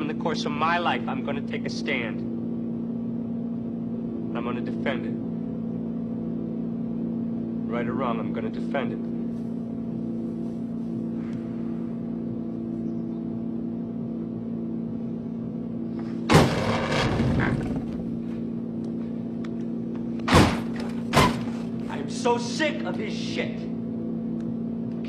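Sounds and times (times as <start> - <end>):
car engine idling: 14.8 - 22.3
kicks slamming into car body: 16.3 - 17.5, 20.3 - 21.6.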